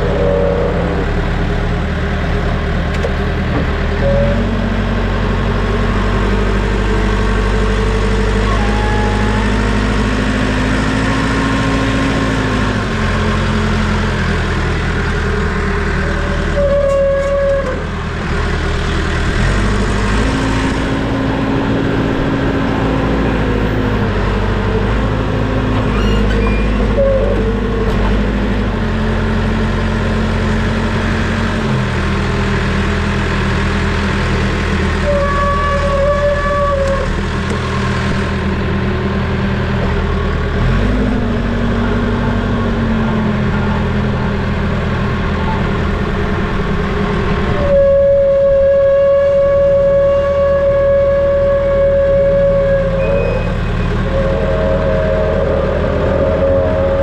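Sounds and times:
diesel engine running: 0:00.0 - 0:57.0
short high tones: 0:53.0 - 0:56.6.

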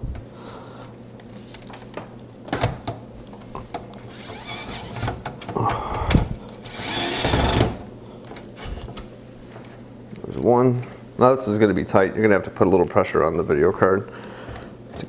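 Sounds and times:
electric screwdriver whirring: 0:06.6 - 0:07.8.

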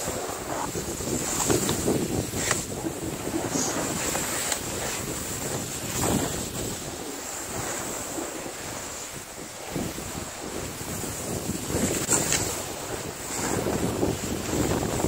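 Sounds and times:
sharp ski scrapes: 0:00.0 - 0:09.1, 0:11.4 - 0:12.6
skis hissing over snow: 0:00.0 - 0:14.9
wind on microphone: 0:00.0 - 0:15.0.

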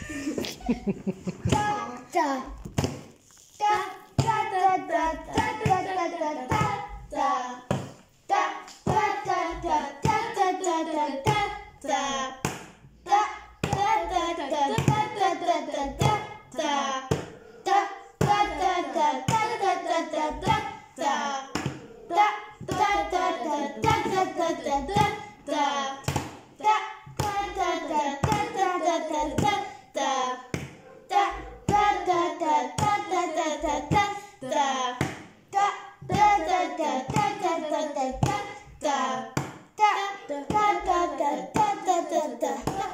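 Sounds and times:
voices chanting rhythm syllables: 0:00.0 - 0:42.9
hands beating sharp knocks: 0:39.3 - 0:39.7.

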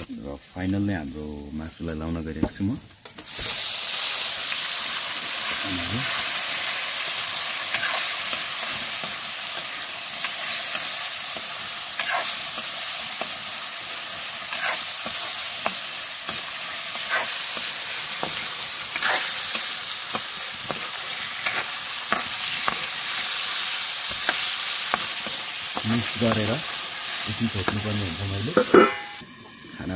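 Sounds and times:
chicken sizzling in hot oil: 0:00.0 - 0:29.9
metal spoon scraping a wok: 0:07.6 - 0:13.6, 0:14.4 - 0:26.4, 0:28.5 - 0:29.2.

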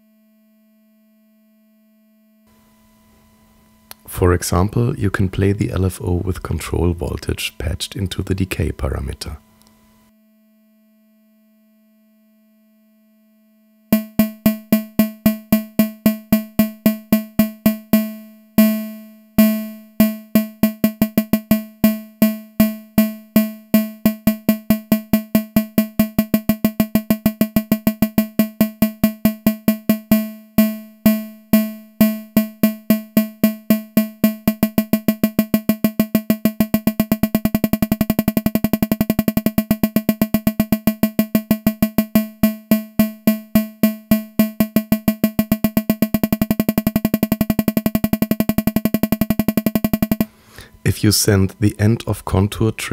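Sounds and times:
synthesizer plucked pulses: 0:14.0 - 0:18.7, 0:19.4 - 0:50.3.

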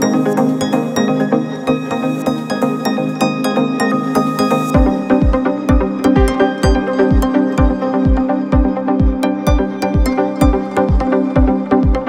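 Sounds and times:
sustained synth chords: 0:00.0 - 0:12.0
deep kick drum: 0:04.8 - 0:12.0.

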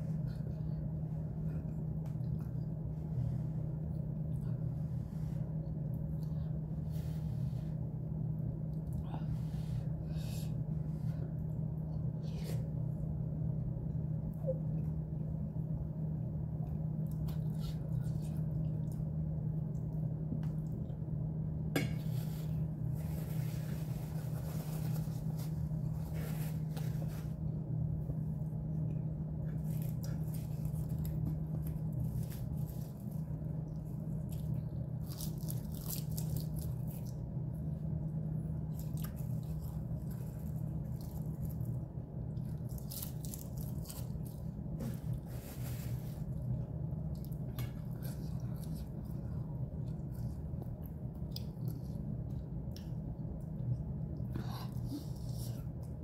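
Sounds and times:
steady low hum: 0:00.0 - 0:56.0
paper napkin rustling: 0:22.0 - 0:27.5, 0:42.8 - 0:46.4.

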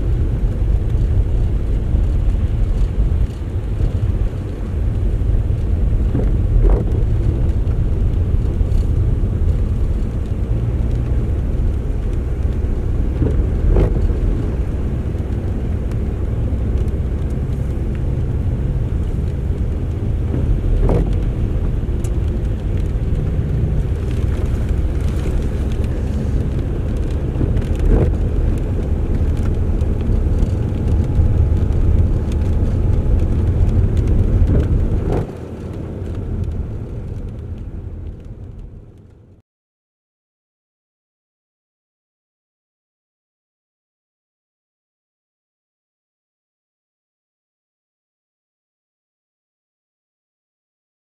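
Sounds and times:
tyres hissing on wet road: 0:00.0 - 0:38.0
engine and tyre rumble: 0:00.0 - 0:39.4.

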